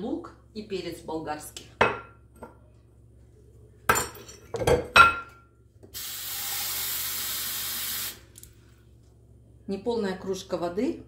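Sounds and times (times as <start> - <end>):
kitchen tap running: 5.9 - 8.4.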